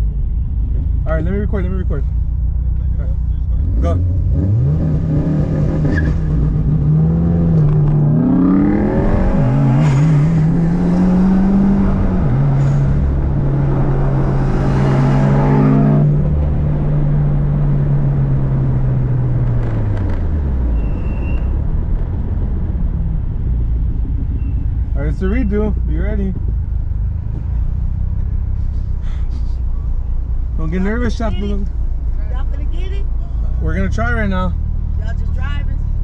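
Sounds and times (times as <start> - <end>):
car engine accelerating hard: 3.5 - 20.7.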